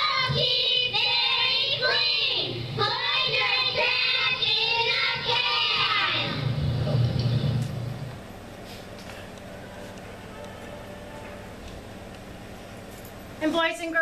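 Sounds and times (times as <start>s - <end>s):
girls singing through speakers: 0.0s - 6.5s.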